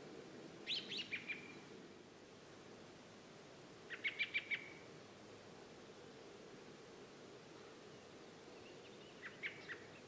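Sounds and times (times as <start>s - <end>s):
small bird singing: 0.7s - 1.6s, 3.9s - 4.8s, 7.9s - 10.0s.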